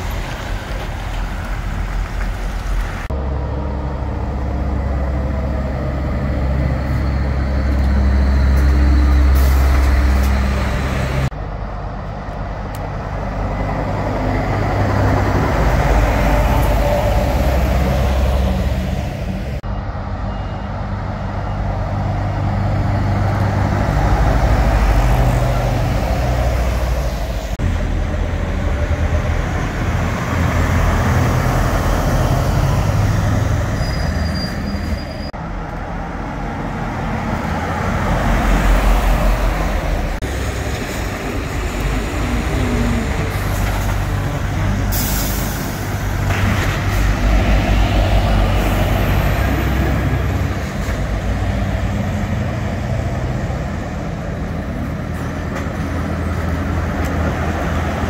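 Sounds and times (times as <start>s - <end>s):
trucks driving past: 0.0s - 58.0s.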